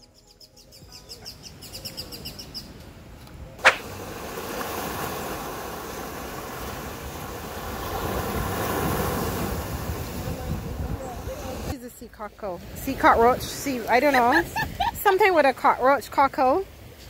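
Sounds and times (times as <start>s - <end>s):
bird chirping: 0.0s - 2.8s
sharp click: 3.6s - 3.8s
waves washing over rocks: 3.6s - 11.7s.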